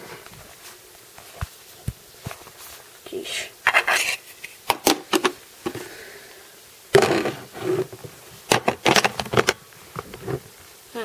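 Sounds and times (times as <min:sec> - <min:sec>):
plastic toy bricks clicking and knocking: 0:08.5 - 0:09.6.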